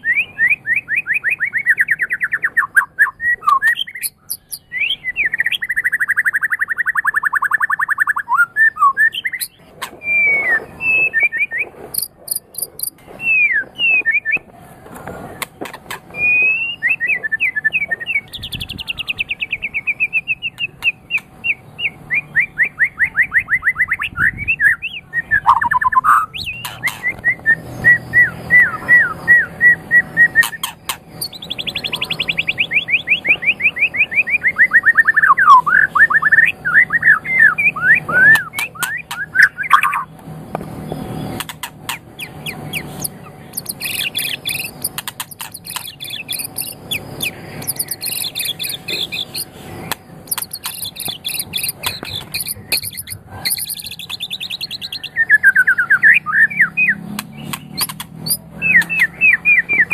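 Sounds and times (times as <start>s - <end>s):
bird singing whistled phrases: 0.0s - 14.4s, 16.2s - 40.1s, 42.2s - 49.5s, 50.3s - 59.9s
sharp clicks: 12.0s - 13.0s, 41.4s - 54.8s, 57.1s - 59.0s.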